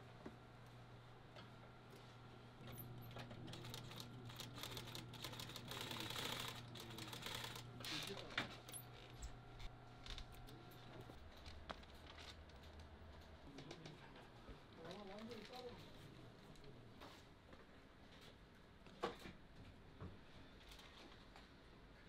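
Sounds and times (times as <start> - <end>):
sewing machine motor humming: 2.7 - 8.3.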